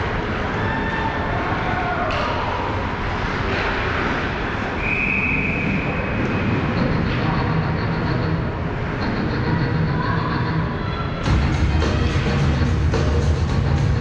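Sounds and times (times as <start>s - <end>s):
ice arena background noise: 0.0s - 14.0s
referee's whistle: 4.8s - 6.2s.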